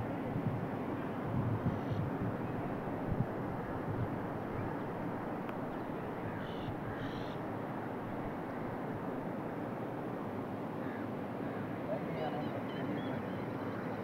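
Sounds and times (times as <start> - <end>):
crow cawing: 6.2 - 7.4, 10.8 - 11.7.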